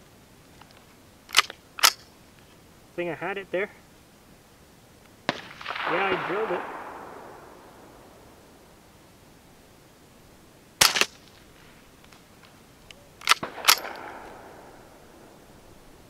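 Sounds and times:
faint rifle action clicks: 0.5s - 2.6s, 10.8s - 14.7s
quiet rifle cracks: 0.6s - 2.1s, 5.3s - 8.7s, 10.8s - 15.5s.

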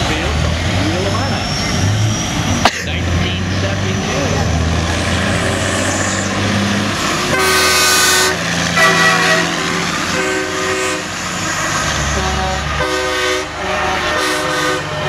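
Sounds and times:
diesel engines running: 0.0s - 15.0s
truck air horn blasts: 7.3s - 11.3s, 12.0s - 15.0s.

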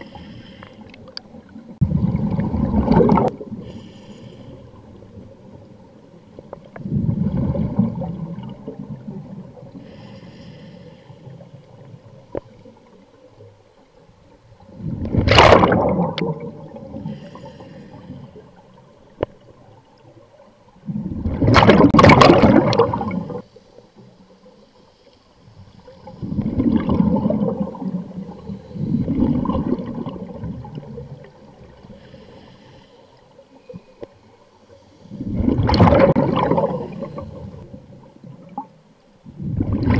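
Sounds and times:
exhaled bubbles burbling: 1.7s - 3.6s, 6.7s - 9.7s, 14.7s - 17.1s, 20.8s - 23.4s, 26.0s - 31.7s, 35.2s - 37.7s, 39.3s - 39.9s.

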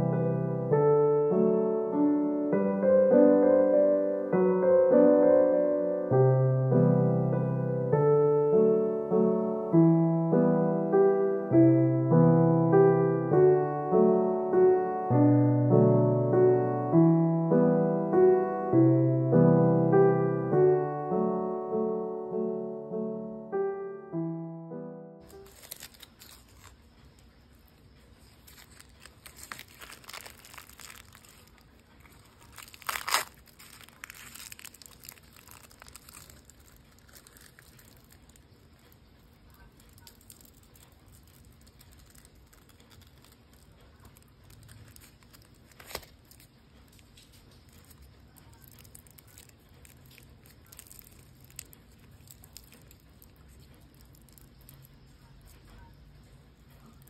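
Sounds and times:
bagel crust tearing and crackling: 25.2s - 56.0s, 56.6s - 57.0s
paper crinkling: 25.2s - 56.0s, 56.7s - 57.0s.

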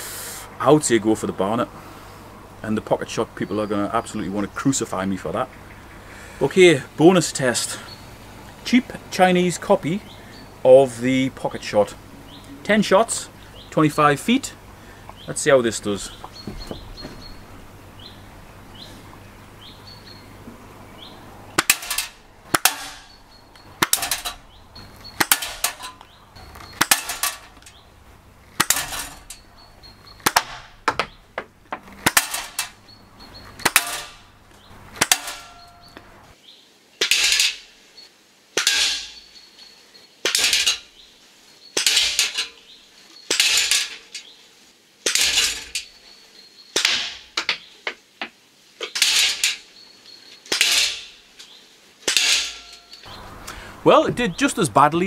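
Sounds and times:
ball clacking on metal target: 21.6s - 23.2s, 23.8s - 24.4s, 25.1s - 26.0s, 28.6s - 29.5s.

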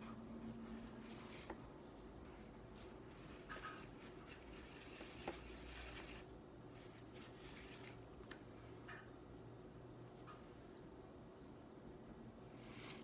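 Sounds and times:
paintbrush rubbing on crystal: 2.7s - 8.0s.

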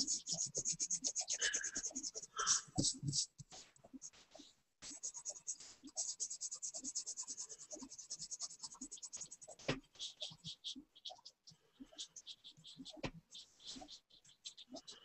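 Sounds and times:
pencil scratching on paper: 0.0s - 11.3s.

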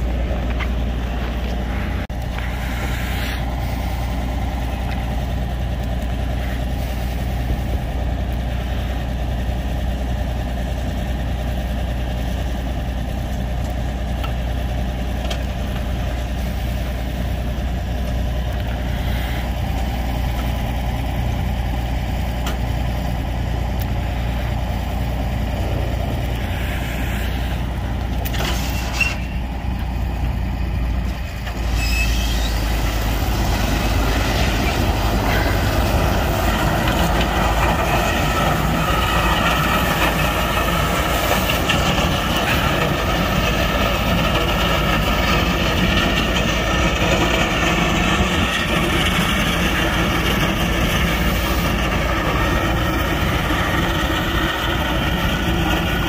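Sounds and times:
vehicle engine humming: 0.0s - 56.0s.

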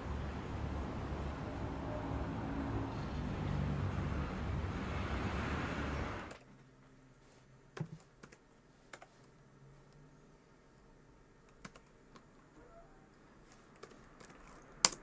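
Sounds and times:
traffic rumble: 0.0s - 7.2s
laptop keys tapped: 7.8s - 9.1s, 11.4s - 12.4s, 13.5s - 15.0s.

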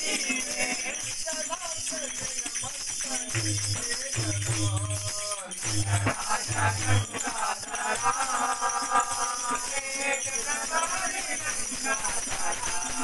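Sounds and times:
men singing: 0.0s - 13.0s
metal percussion jingling: 0.0s - 13.0s
hand drum: 3.1s - 7.1s.

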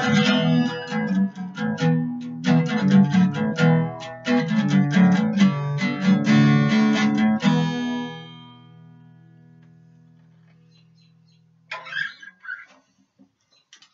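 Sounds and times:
acoustic guitar strummed: 0.0s - 10.4s.

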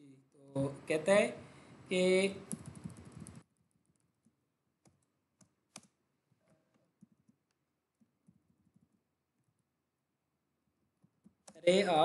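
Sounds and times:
computer keyboard clicks: 2.5s - 6.0s.

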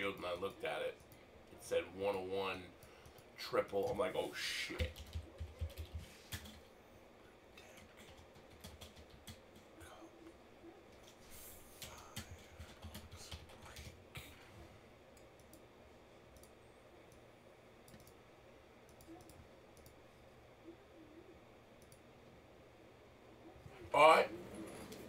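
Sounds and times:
keyboard typing: 4.7s - 6.7s, 7.6s - 9.9s, 10.9s - 14.0s, 17.8s - 18.2s, 18.9s - 20.0s.

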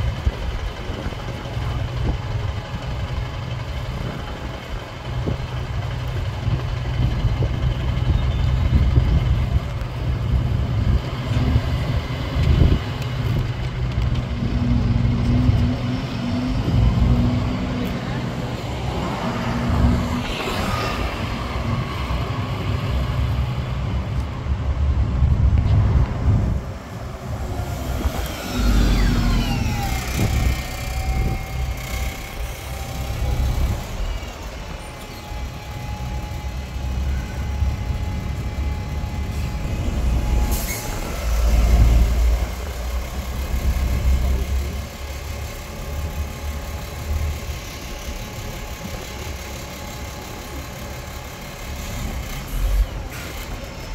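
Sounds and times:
diesel engines rumbling: 0.0s - 53.9s
falling whines of slowing vehicles: 0.0s - 53.9s
air brake hiss: 40.4s - 41.4s.

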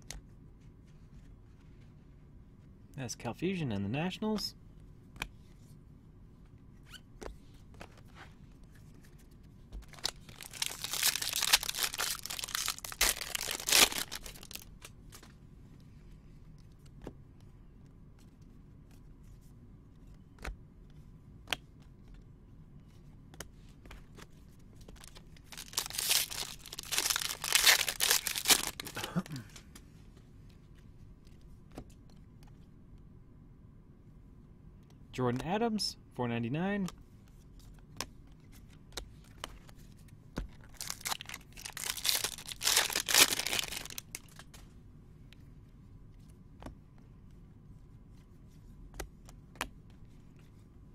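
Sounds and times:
card pack wrapper tearing: 9.9s - 14.7s, 25.0s - 29.4s, 40.7s - 44.5s.

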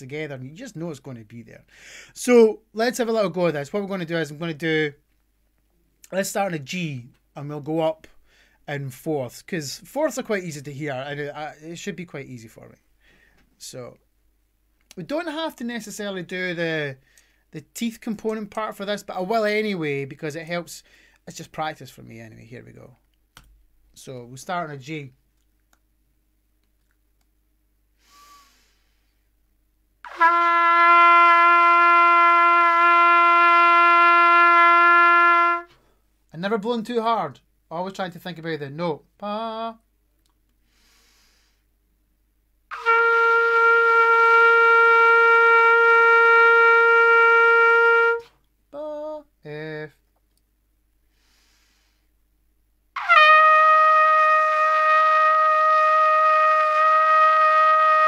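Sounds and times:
breath intake: 1.7s - 2.1s, 28.0s - 29.2s
trumpet playing a long note: 30.1s - 35.7s, 42.7s - 48.3s, 53.0s - 58.0s.

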